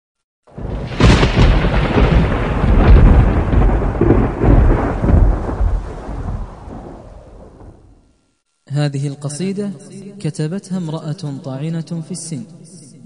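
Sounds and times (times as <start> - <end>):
thunder crack and rumble: 0.5 - 8.1
rain hiss: 0.6 - 8.2.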